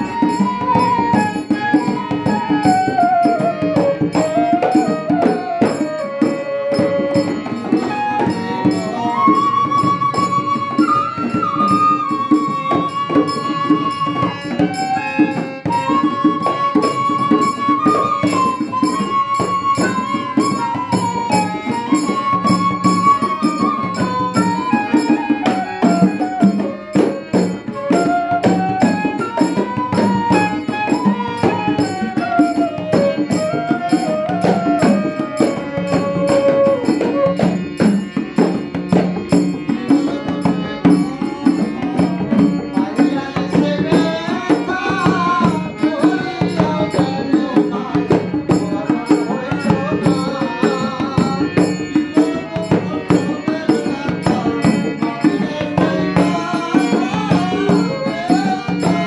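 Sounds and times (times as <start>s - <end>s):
bamboo flute melody: 0.0s - 59.0s
hand drum beating: 0.0s - 59.0s.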